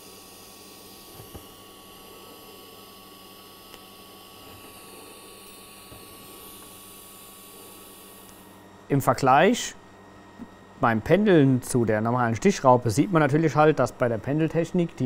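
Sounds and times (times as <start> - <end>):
thin high whine: 0.0 - 9.7.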